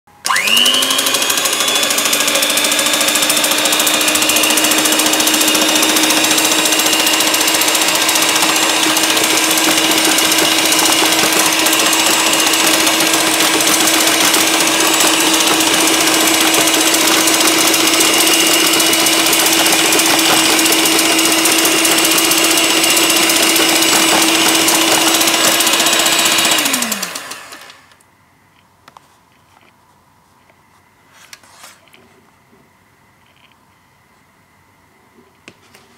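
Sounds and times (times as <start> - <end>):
electric hand mixer motor: 0.2 - 28.0
pencils scraping on paper: 4.3 - 25.8.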